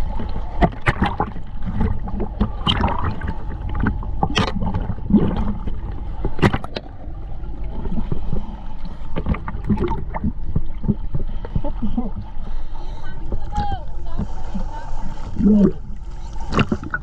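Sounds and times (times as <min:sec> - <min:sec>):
low rumble: 0:00.0 - 0:17.0
water sloshing and gurgling: 0:00.0 - 0:17.0.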